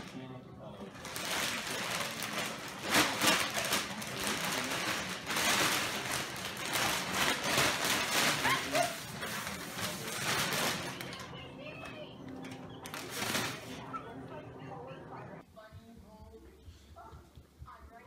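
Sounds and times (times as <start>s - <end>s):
plastic bag crinkling: 0.9s - 14.0s.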